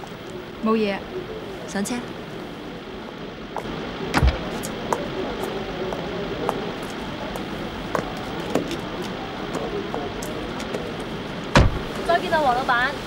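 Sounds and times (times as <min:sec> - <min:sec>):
steady background hiss: 0:00.0 - 0:13.0
car door shutting: 0:11.5 - 0:11.9.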